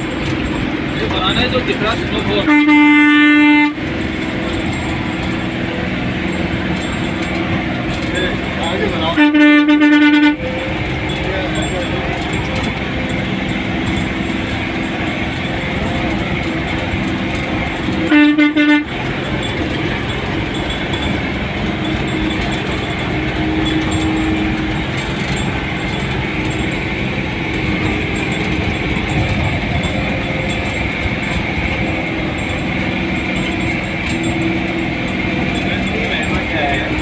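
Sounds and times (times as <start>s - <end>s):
engine and road noise: 0.0s - 37.0s
vehicle horn toots: 2.3s - 3.8s, 9.0s - 10.6s, 18.0s - 19.0s.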